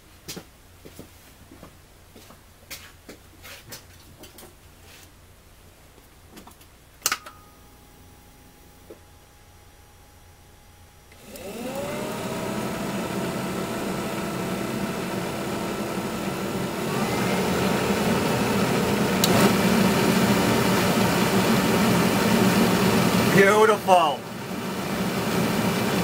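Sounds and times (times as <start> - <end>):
blower motor whining: 11.0 - 26.0.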